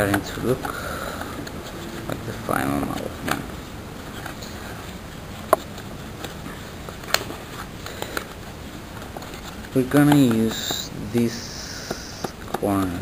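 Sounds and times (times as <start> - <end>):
sharp clicks: 10.1 - 12.4.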